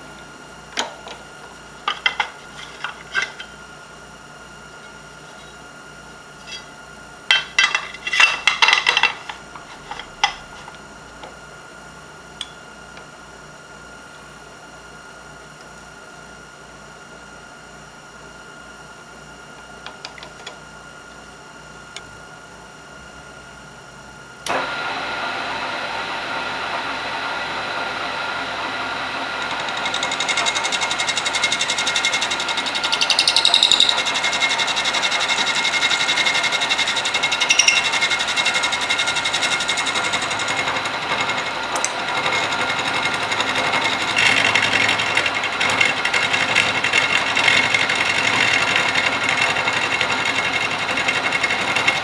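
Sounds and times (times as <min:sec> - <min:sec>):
milling machine whine: 0:00.0 - 0:52.0
milling machine cutting aluminum: 0:28.6 - 0:52.0.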